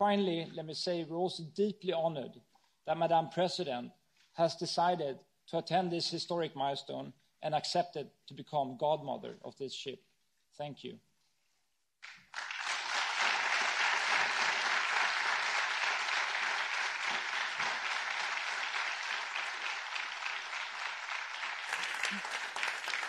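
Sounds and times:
audience applauding: 12.0 - 23.0.

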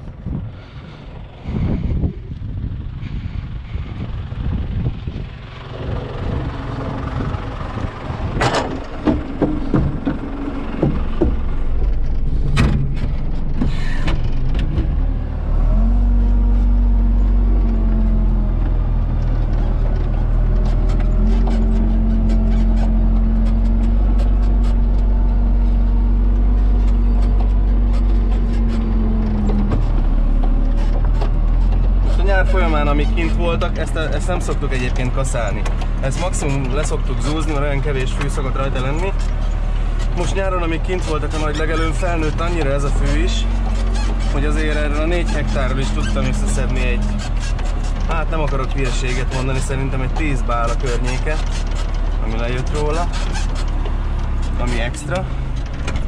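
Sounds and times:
diesel engine from inside cab: 0.0 - 56.0
sharp knocks and clatter: 8.3 - 15.1, 18.6 - 56.0.

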